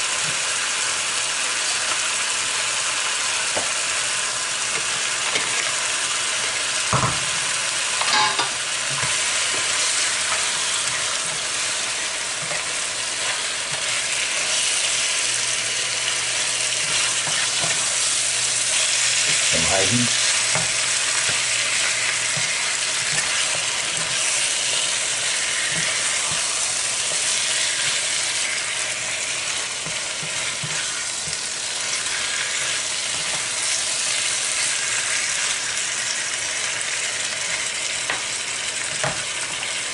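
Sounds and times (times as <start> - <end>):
chicken sizzling in frying pan: 0.0 - 39.9
spoon scraping pan: 16.5 - 34.8.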